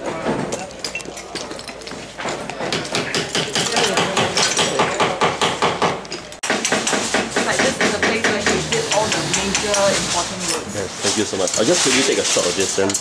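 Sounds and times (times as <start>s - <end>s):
hand tools knocking on door: 2.6s - 10.0s.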